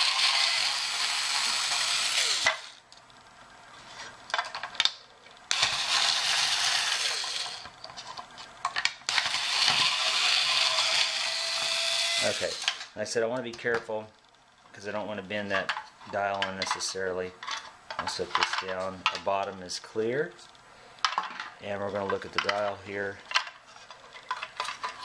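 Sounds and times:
electric screwdriver whirring: 0.0s - 2.8s, 5.5s - 7.6s, 9.1s - 12.9s.

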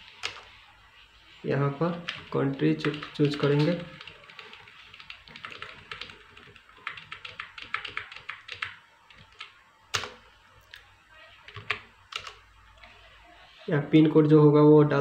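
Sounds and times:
laptop keyboard typing clicks: 2.1s - 10.2s.

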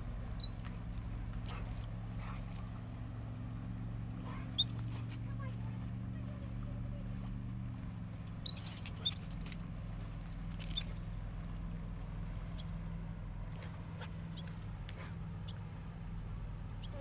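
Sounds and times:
squirrels chirping alarm calls: 0.4s - 0.7s, 4.5s - 4.9s, 8.3s - 9.6s, 10.6s - 11.2s, 12.5s - 12.8s, 15.4s - 15.7s, 16.7s - 17.0s.

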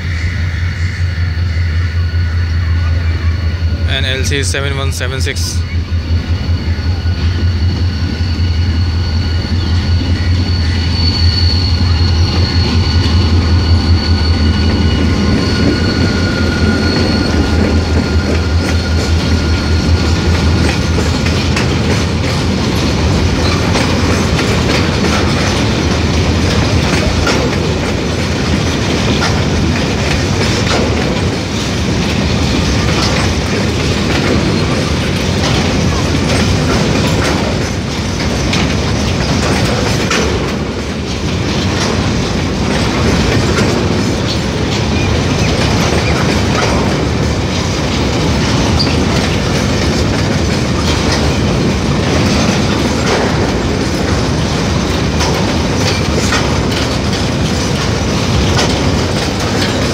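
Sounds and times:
high whine: 0.0s - 26.9s
locomotive low rumble: 0.0s - 59.9s
wheels clacking over rail joints: 5.4s - 59.9s.

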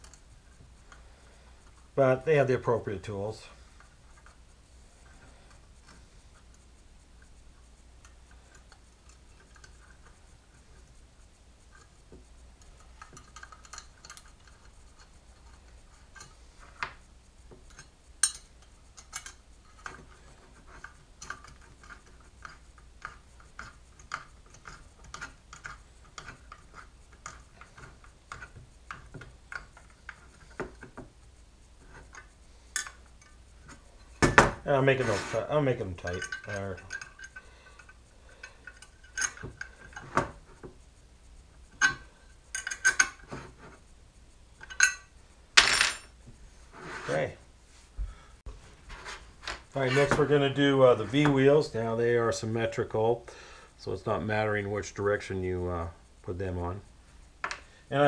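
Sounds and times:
allen wrench clicking on metal: 12.6s - 15.5s, 36.0s - 40.0s, 41.7s - 43.2s.

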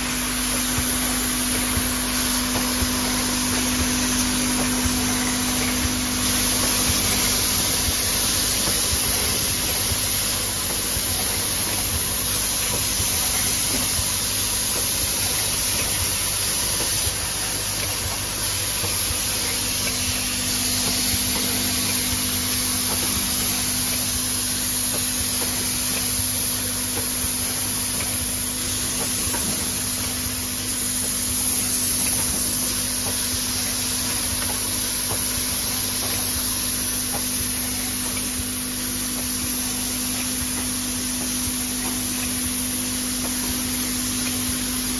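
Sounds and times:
air line hissing: 0.0s - 44.9s
machine humming: 0.0s - 44.9s.

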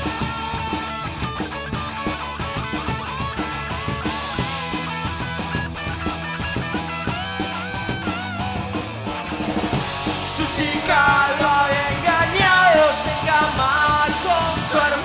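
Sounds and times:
rock band playing live: 0.0s - 15.0s
person singing: 10.2s - 15.0s.

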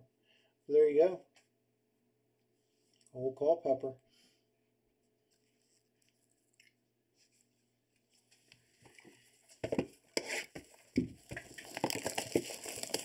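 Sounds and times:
cardboard boxes rustling: 8.8s - 13.0s.

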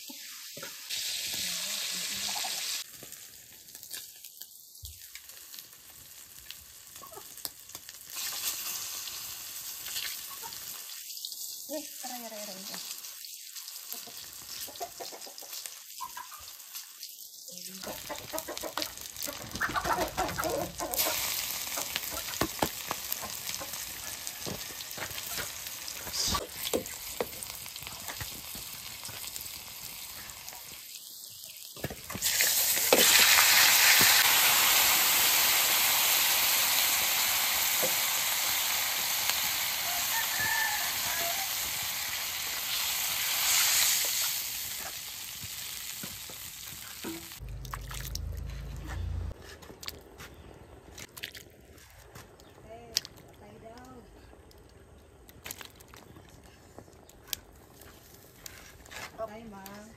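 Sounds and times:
loud sizzle: 0.0s - 14.7s, 15.5s - 19.7s, 20.7s - 47.4s
food frying in oil: 0.0s - 48.3s.

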